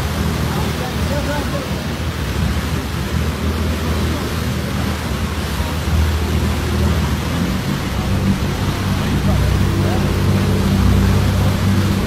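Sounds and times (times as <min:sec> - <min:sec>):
boat engine droning: 0:00.0 - 0:12.0
water rushing: 0:00.0 - 0:12.0.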